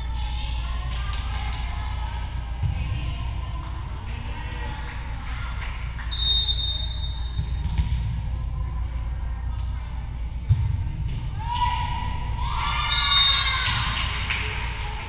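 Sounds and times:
referee's whistle blast: 6.1s - 7.4s.

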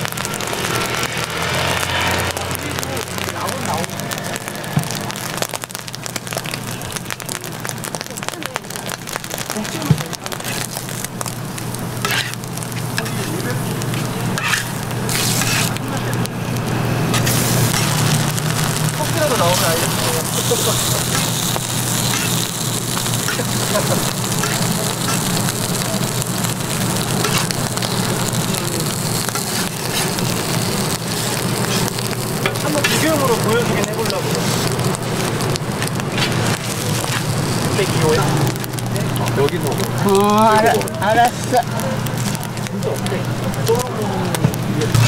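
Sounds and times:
food sizzling on griddle: 0.0s - 45.0s
metal spatula scraping: 12.0s - 13.3s, 13.9s - 15.8s, 17.1s - 18.0s, 19.4s - 25.4s, 27.2s - 27.6s.

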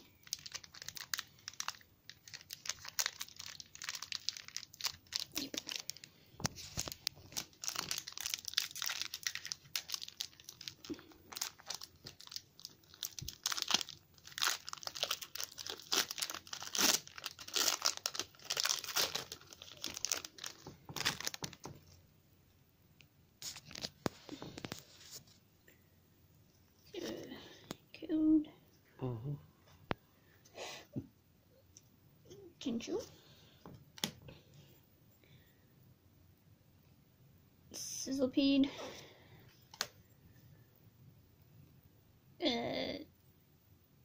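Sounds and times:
foil wrapper crinkling and tearing: 0.1s - 21.8s.

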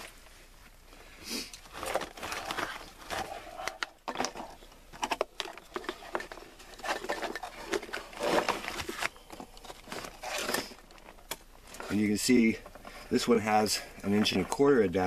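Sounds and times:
plastic pipe scraping and rustling: 1.5s - 15.0s
plastic pipe fittings clicking and knocking: 3.6s - 9.8s.

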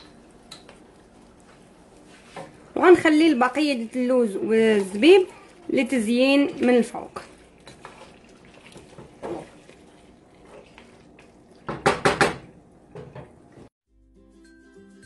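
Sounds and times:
wooden spatula scraping a pot: 0.7s - 11.8s
spatula knocking against pot: 11.6s - 13.4s.

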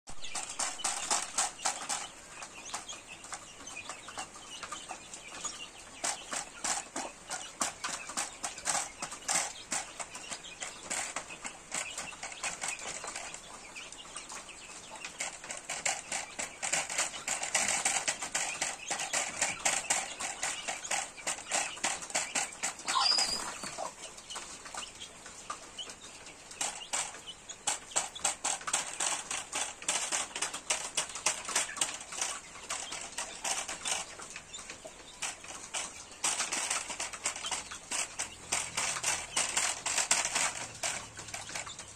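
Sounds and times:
chickens pecking grain: 0.1s - 41.9s
chicken high call: 22.9s - 23.9s.

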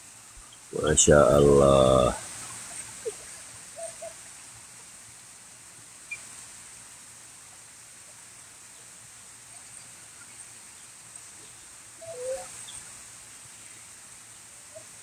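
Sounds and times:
steady high hiss: 0.0s - 15.0s
low bird call: 2.7s - 4.2s, 11.4s - 12.9s
birds chirping: 8.7s - 15.0s.

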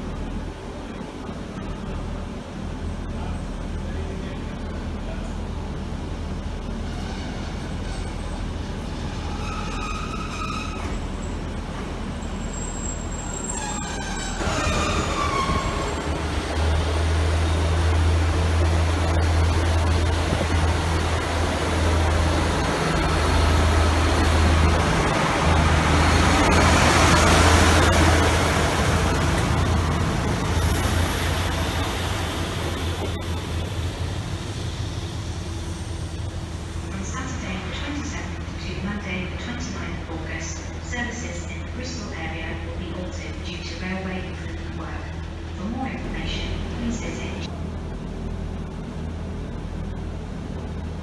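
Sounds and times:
diesel train engine drone: 0.0s - 51.0s
train wheels rumbling: 0.0s - 51.0s.

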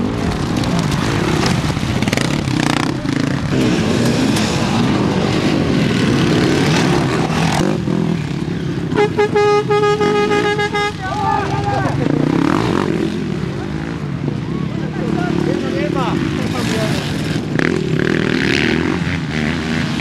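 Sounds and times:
motorcycle engines revving: 0.0s - 20.0s
horn steady note: 9.0s - 11.1s.

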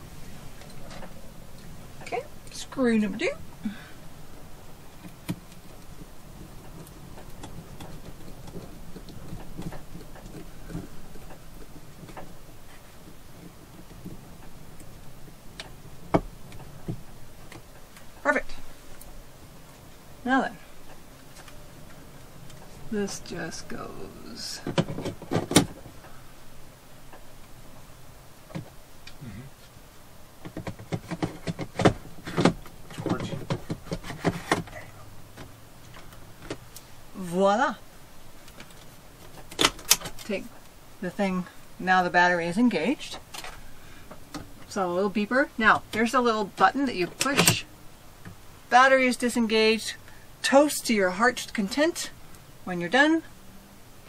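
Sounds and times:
plastic scraping: 30.5s - 34.8s.

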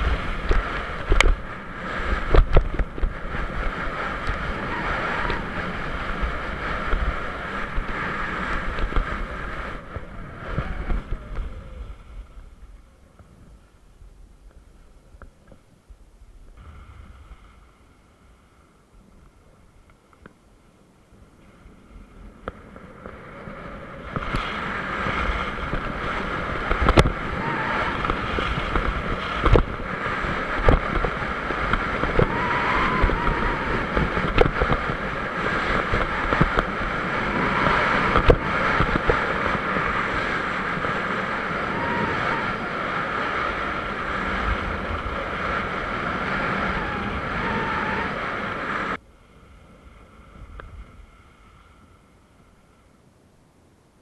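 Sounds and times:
skis scraping over snow: 0.0s - 13.7s, 21.2s - 52.2s
wind on microphone: 0.0s - 19.9s, 21.0s - 53.0s.

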